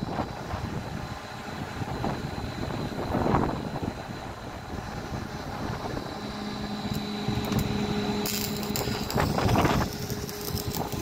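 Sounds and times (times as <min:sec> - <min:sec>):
steady low hum: 0:00.0 - 0:11.0
welding arc crackling: 0:05.6 - 0:11.0.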